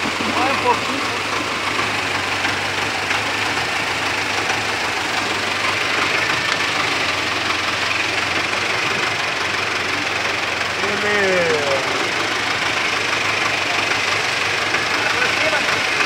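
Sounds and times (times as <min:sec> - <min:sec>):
tractor diesel engine running: 0:00.0 - 0:16.0.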